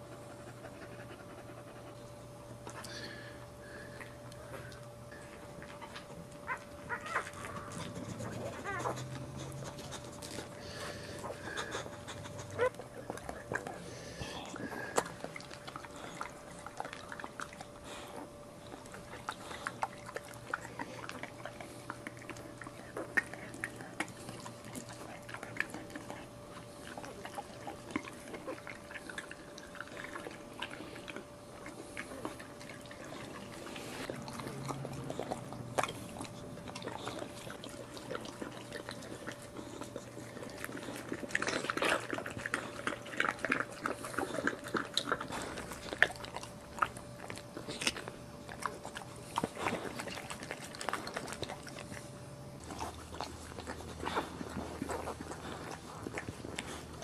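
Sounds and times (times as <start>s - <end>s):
dog licking wet lapping: 18.6s - 57.0s.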